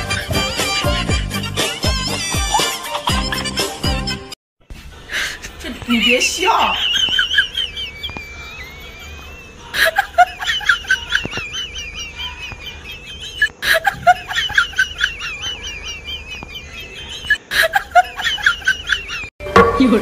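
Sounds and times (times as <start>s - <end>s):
cackling laughter sound effect: 1.5s - 3.8s, 6.7s - 19.3s.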